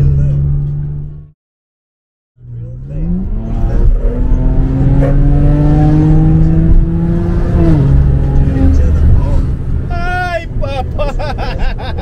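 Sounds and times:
car engine accelerating: 2.4 - 11.3.

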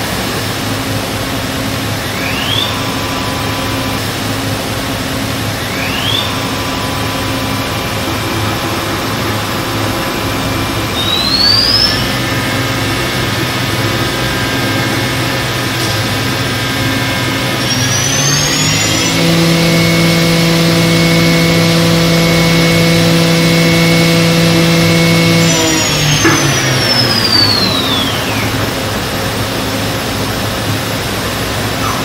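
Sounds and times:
machining center humming: 0.0 - 32.0
spindle whine rising in pitch: 0.0 - 32.0.

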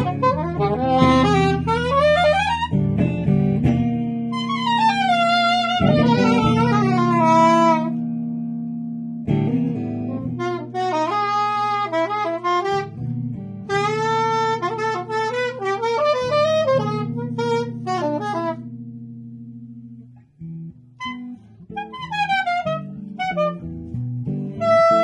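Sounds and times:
soprano saxophone phrases: 0.0 - 2.8, 4.3 - 8.0, 10.0 - 13.1, 13.7 - 18.7, 21.0 - 23.7, 24.6 - 25.0
ringing electric guitar chords: 0.0 - 25.0.

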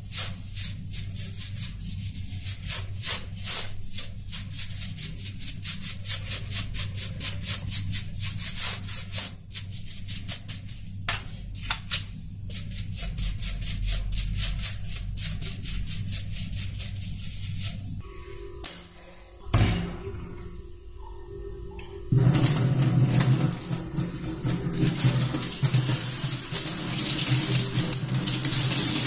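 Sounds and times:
steady low hum: 0.0 - 28.6
brush bristles sweeping keyboard plate: 12.5 - 17.9.

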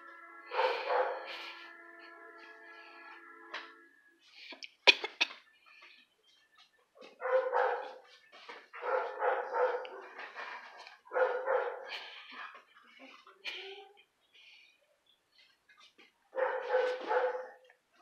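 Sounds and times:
dog barking and growling: 0.5 - 1.8, 7.1 - 8.1, 8.8 - 12.2, 16.3 - 17.7.

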